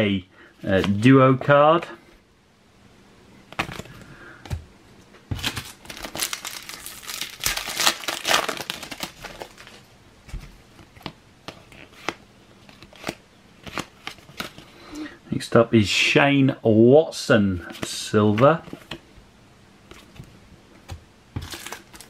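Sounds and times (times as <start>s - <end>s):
plastic wrapper crinkling: 5.4s - 9.9s, 21.4s - 22.0s.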